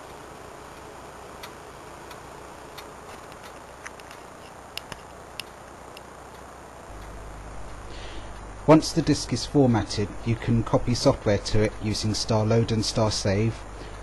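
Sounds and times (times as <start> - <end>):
floppy drive running noise: 0.0 - 14.0.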